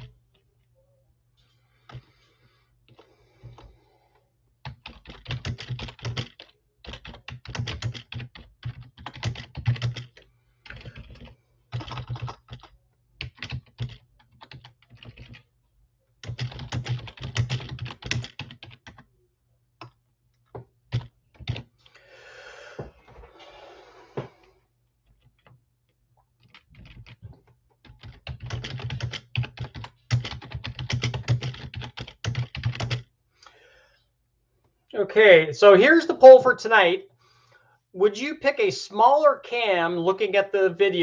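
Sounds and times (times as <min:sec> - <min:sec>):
typing on computer keyboard: 0:04.6 - 0:15.5, 0:16.2 - 0:19.1, 0:20.9 - 0:21.7, 0:26.4 - 0:33.1.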